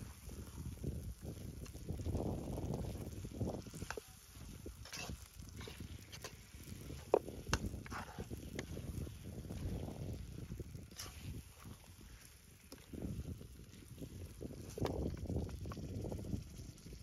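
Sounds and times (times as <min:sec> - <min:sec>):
spoon scraping steel pan: 0:04.8 - 0:06.4.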